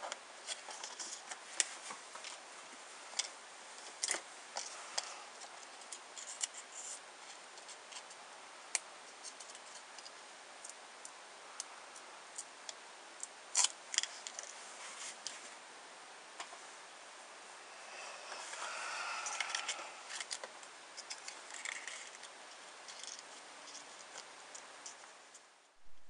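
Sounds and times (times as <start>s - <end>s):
paper clicks and crinkles: 19.5s - 25.5s.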